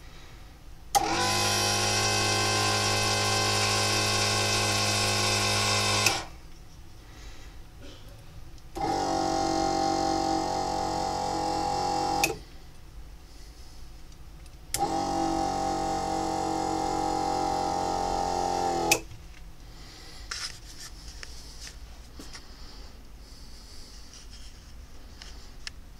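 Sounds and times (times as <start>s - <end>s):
hydraulic pump motor humming: 0.9s - 6.4s, 8.8s - 12.5s, 14.7s - 19.1s
sharp click: 18.9s - 19.1s.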